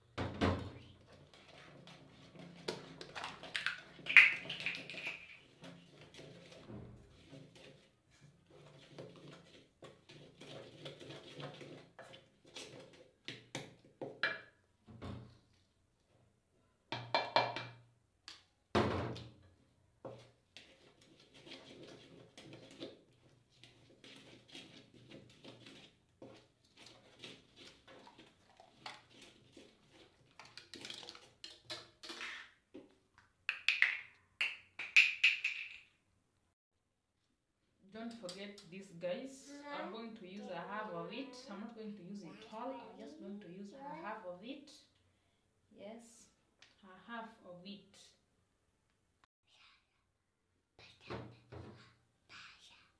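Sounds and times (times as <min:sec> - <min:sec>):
spoon scraping metal bowl: 0:01.3 - 0:13.0.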